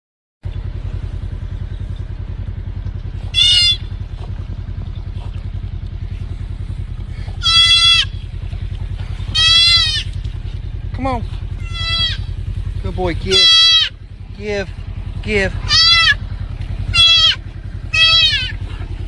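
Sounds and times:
steady low rumble: 0.4s - 19.0s
deer fawn bleating: 3.2s - 4.0s, 7.4s - 8.2s, 9.2s - 10.2s, 11.5s - 12.4s, 13.2s - 14.0s, 15.6s - 18.7s.

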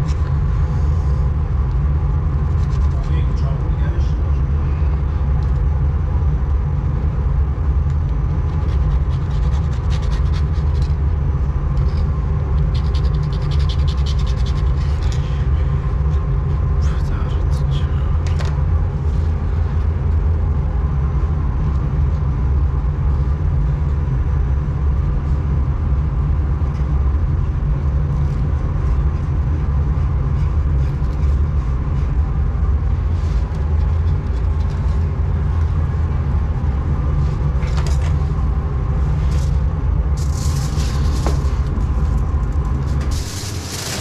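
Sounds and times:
faint steady hum: 0.0s - 44.0s
kitchen machinery rumble: 28.2s - 44.0s
aluminium foil crackling: 40.2s - 44.0s.

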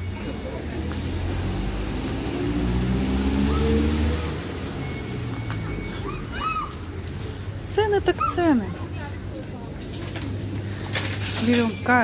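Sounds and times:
vehicle accelerating past: 0.3s - 6.3s.

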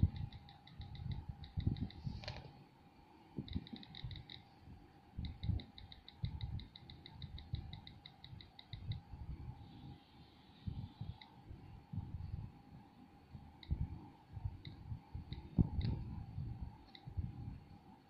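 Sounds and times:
on-screen keyboard ticks: 0.0s - 2.0s, 3.4s - 4.5s, 5.2s - 9.1s, 13.6s - 13.8s, 14.6s - 16.0s, 16.8s - 17.1s.

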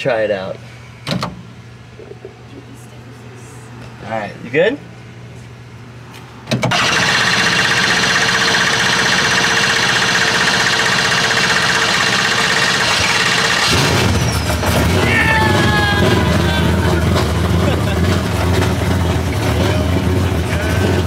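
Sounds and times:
car engine starting and running: 6.6s - 21.0s.

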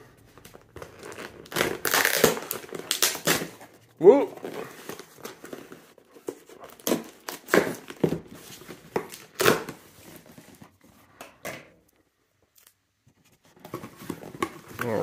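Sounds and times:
packing tape and cardboard ripping: 0.4s - 10.3s.

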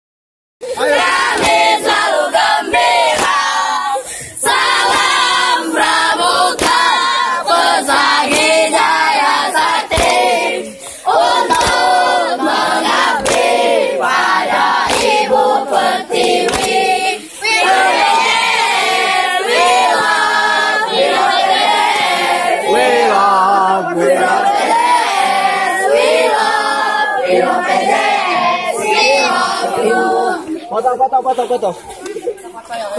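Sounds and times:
teenagers singing and chanting: 0.6s - 32.9s
hand claps: 1.3s - 2.0s, 3.1s - 3.5s, 4.8s - 5.3s, 6.5s - 7.0s, 8.2s - 9.2s, 9.9s - 13.7s, 14.8s - 15.4s, 16.1s - 17.1s.

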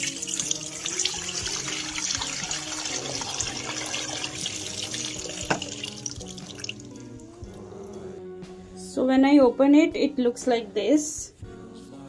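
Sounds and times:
water pouring into a sink: 0.0s - 6.8s.

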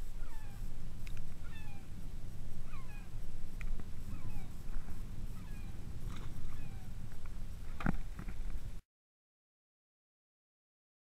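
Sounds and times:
birds whistling calls: 0.0s - 0.7s, 1.4s - 1.9s, 2.6s - 3.2s, 4.0s - 7.0s
low rumble: 0.0s - 8.8s.

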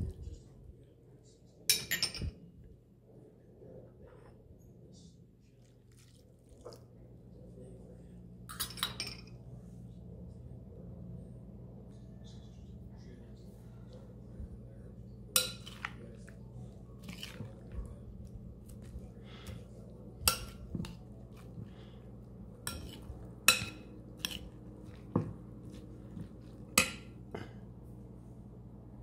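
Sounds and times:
spoon clinking against glass bowl: 15.4s - 15.9s, 22.6s - 24.5s
wet scraping of stirred salsa: 15.4s - 26.8s.

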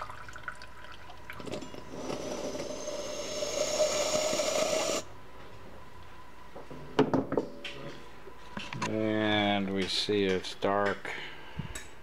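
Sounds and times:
fuel pouring into plastic beaker: 0.0s - 5.0s.

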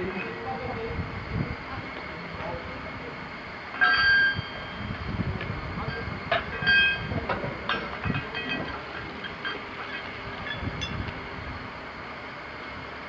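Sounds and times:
metal chain clanking: 7.7s - 11.0s.

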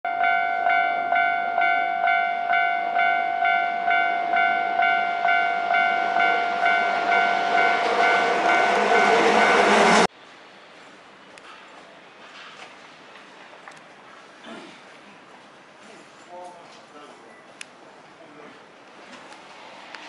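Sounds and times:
level crossing warning bell: 0.1s - 10.1s
electric train running: 3.0s - 10.1s.

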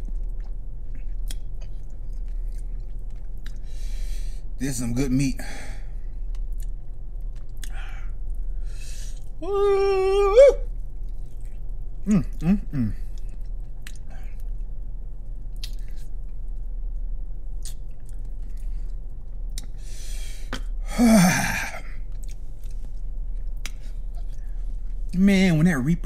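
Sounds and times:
man chewing: 0.0s - 4.1s, 6.1s - 14.7s, 15.6s - 16.4s, 17.6s - 25.1s
man groaning: 9.4s - 10.6s, 12.1s - 13.0s, 20.9s - 22.0s
man humming: 9.4s - 10.6s, 12.0s - 13.0s, 20.9s - 22.0s.

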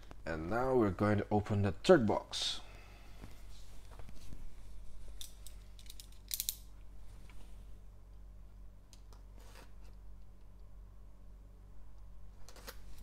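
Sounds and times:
soft rustling: 3.1s - 5.7s.

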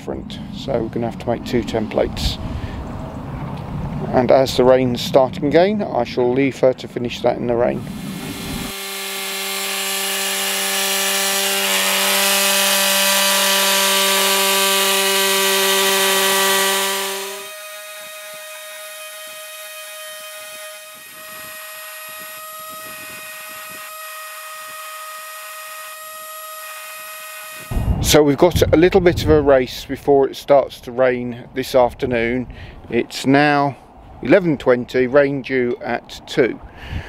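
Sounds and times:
orbital sander whine: 7.6s - 28.2s
jigsaw cutting board: 7.8s - 27.8s.

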